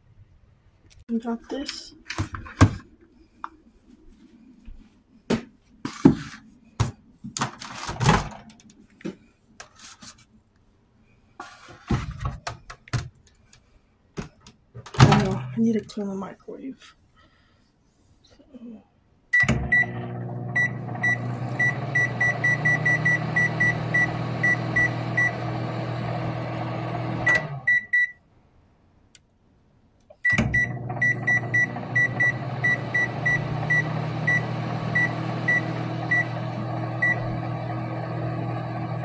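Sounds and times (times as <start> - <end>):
microwave humming: 19.4 - 27.9, 30.3 - 39.0.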